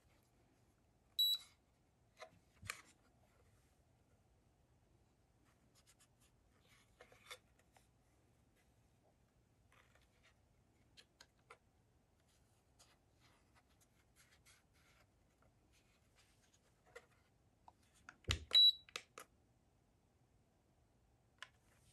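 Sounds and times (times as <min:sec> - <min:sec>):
short high beep: 0:01.2 - 0:01.4.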